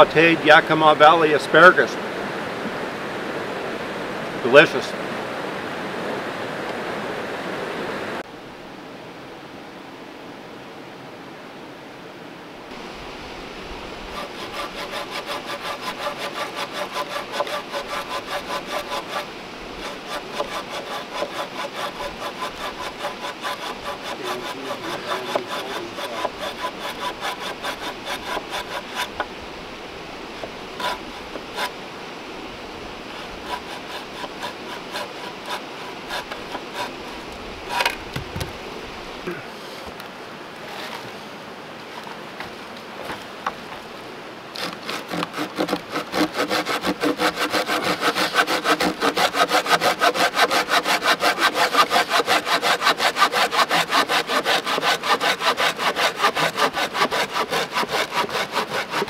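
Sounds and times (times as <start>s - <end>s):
hand saw cutting log: 14.1s - 29.3s, 30.4s - 31.8s, 33.1s - 38.6s, 44.5s - 59.0s
wood knocking: 37.7s - 38.6s.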